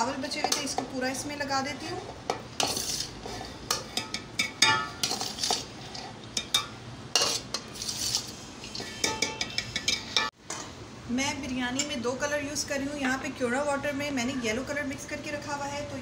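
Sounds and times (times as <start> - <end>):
steel dish clinking on metal pot: 3.7 - 5.6, 8.8 - 10.7.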